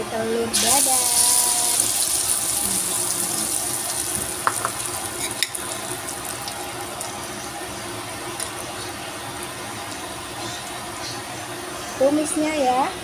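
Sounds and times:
egg sizzling in hot oil: 0.5 - 8.6.

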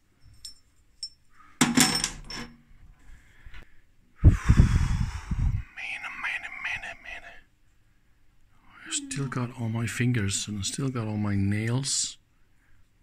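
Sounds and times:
metal machine parts clattering: 0.4 - 2.5.

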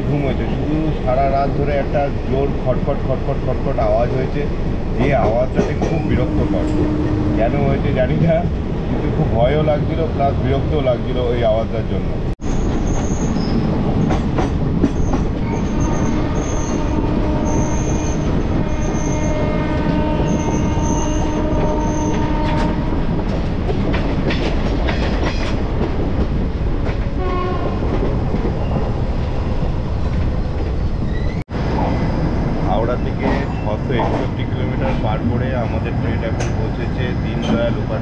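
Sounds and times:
train wheels rumbling on rails: 0.0 - 38.0
train horn: 5.9 - 7.8, 15.6 - 23.0, 27.2 - 27.8.

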